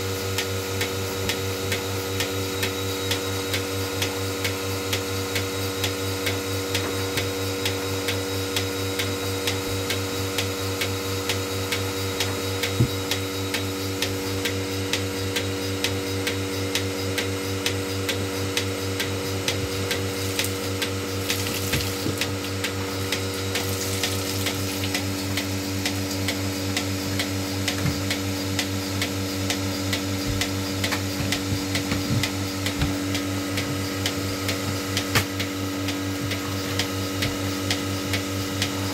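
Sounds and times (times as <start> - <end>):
vacuum pump humming: 0.0 - 38.9.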